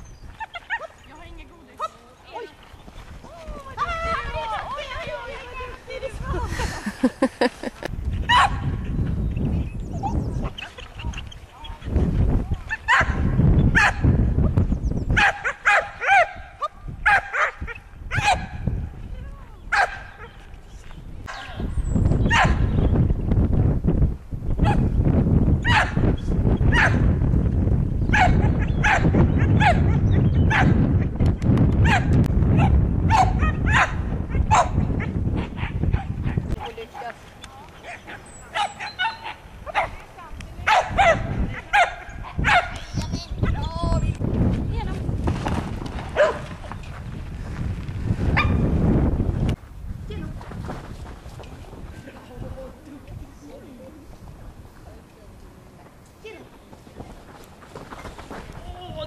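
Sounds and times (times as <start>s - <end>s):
wind rumble on microphone: 0.0s - 59.0s
dog barking: 8.3s - 8.6s, 12.8s - 13.2s, 13.8s - 14.0s, 15.2s - 18.6s, 19.7s - 20.4s, 21.3s - 21.6s, 22.3s - 22.6s, 25.7s - 26.0s, 26.7s - 27.0s, 28.1s - 30.8s, 31.8s - 37.1s, 37.8s - 40.0s, 40.6s - 42.8s, 46.2s - 46.5s, 48.4s - 48.6s.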